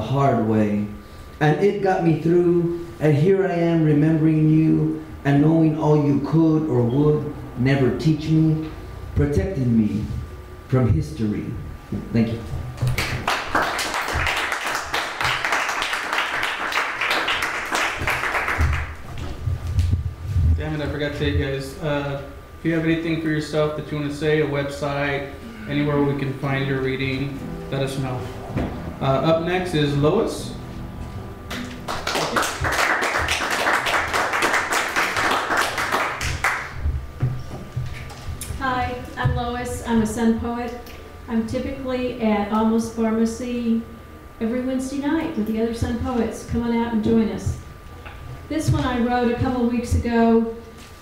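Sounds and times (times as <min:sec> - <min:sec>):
small audience applauding: 0:12.8 - 0:19.3, 0:31.5 - 0:36.9.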